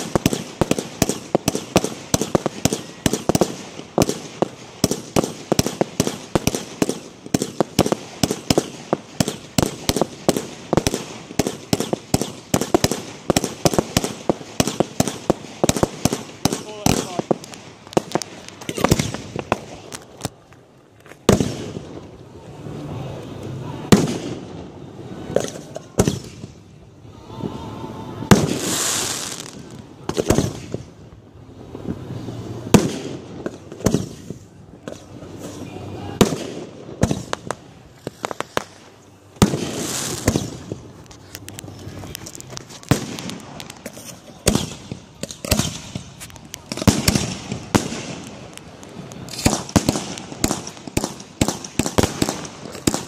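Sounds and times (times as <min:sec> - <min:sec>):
firework bangs: 0:00.0 - 0:22.7, 0:23.7 - 0:53.0
crackling firework bursts: 0:00.0 - 0:53.0
firework hissing rushes: 0:27.1 - 0:30.7, 0:35.1 - 0:53.0.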